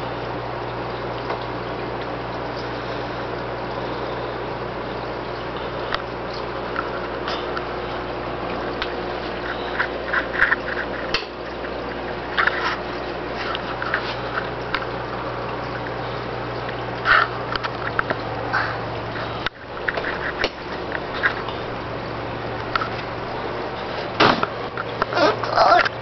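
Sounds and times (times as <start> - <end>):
pump hum: 0.0 - 26.0
water gurgling and splashing: 0.0 - 26.0.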